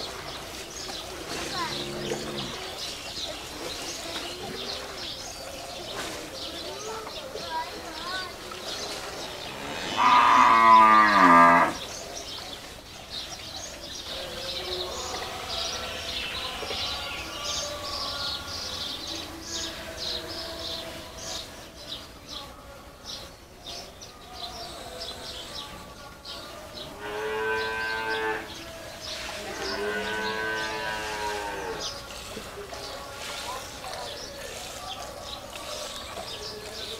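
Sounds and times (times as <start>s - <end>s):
cattle mooing: 9.4s - 11.8s, 29.5s - 31.8s.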